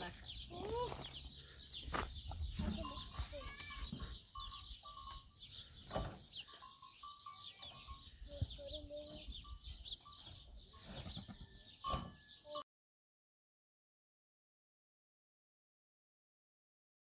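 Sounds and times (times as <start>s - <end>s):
small birds chirping: 0.0s - 12.6s.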